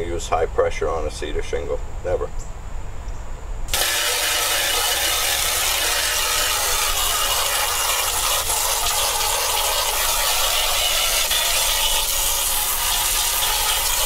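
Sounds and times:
garden hose spraying on wood: 0:03.7 - 0:14.0.

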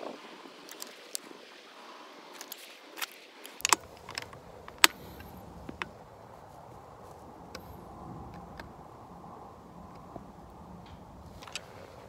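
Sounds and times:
rifle clicks and knocks: 0:02.4 - 0:06.0.

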